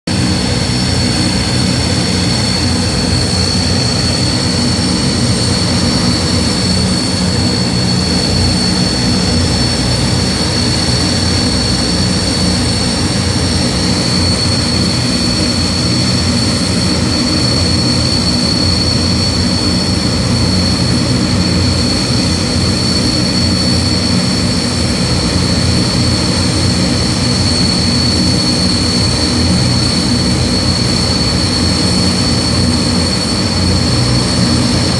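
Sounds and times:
propeller drone: 0:00.0 - 0:34.9
high-pitched turbine whine: 0:00.1 - 0:34.9.

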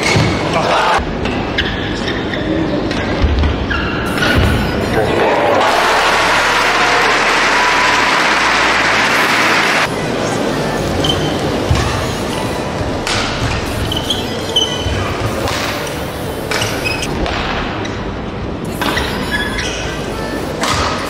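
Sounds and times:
crowd noise: 0:00.0 - 0:21.0
shoes squeaking on court: 0:11.0 - 0:17.1, 0:18.7 - 0:21.0
rackets striking shuttlecock: 0:20.6 - 0:21.0.

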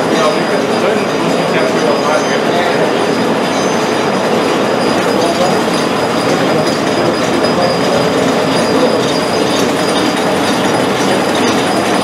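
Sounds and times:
mill machinery clattering: 0:00.0 - 0:12.0.

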